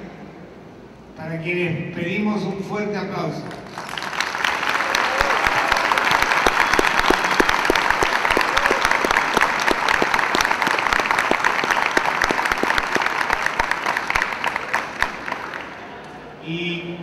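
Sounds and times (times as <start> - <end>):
audience applauding: 3.6 - 16.1.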